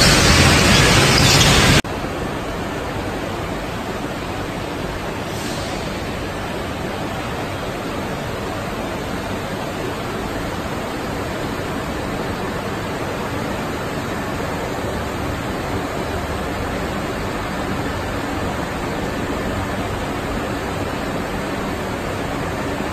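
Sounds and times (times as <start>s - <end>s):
factory hall background noise: 0.0s - 22.9s.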